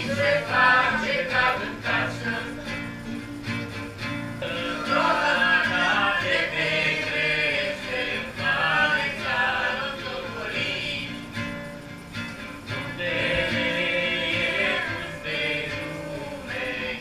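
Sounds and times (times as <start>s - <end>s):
group of voices singing: 0.0s - 11.6s, 12.6s - 17.0s
acoustic guitar: 0.0s - 17.0s.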